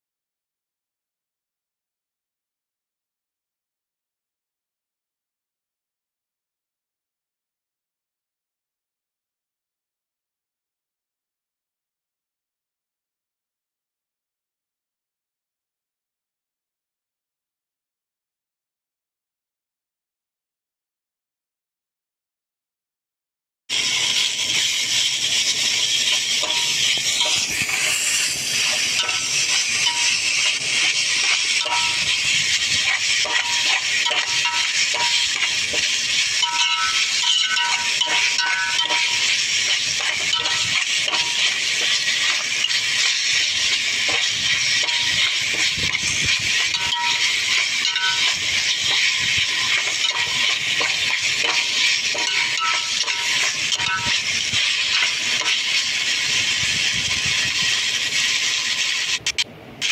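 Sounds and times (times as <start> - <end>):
metal spatula scraping a wok: 23.7 - 59.9
noodles frying in a wok: 23.7 - 59.9.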